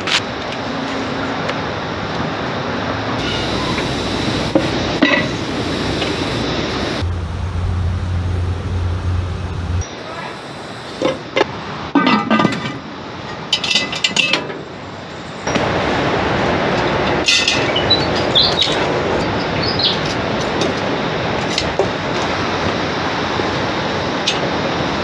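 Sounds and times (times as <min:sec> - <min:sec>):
steady rushing noise: 0:01.6 - 0:11.5.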